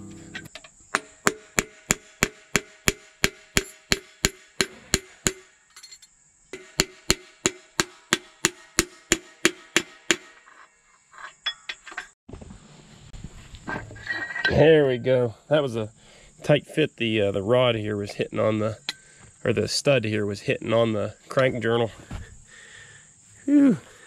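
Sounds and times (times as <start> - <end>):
hammer blows on metal: 0.0 - 5.6, 6.5 - 10.4.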